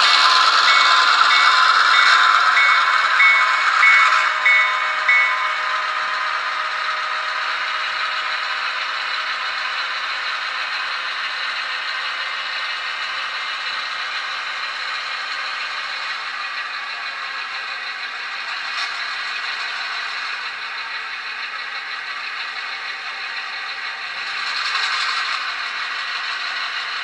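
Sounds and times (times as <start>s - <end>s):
locomotive bell ringing: 0.0s - 8.5s
model diesel engine sound: 0.0s - 27.0s
model train cars rattling: 0.0s - 27.0s.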